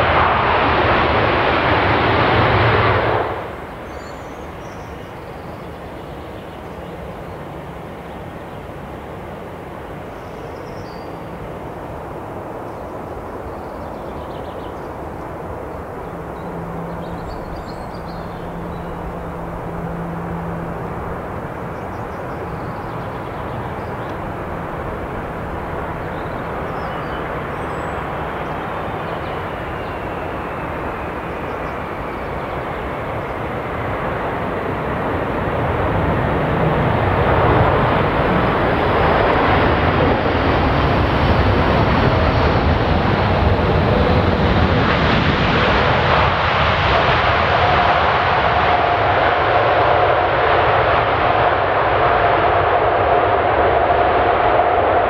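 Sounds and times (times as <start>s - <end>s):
jet engine rumble: 0.0s - 55.0s
faint engine whine falling: 13.8s - 46.0s.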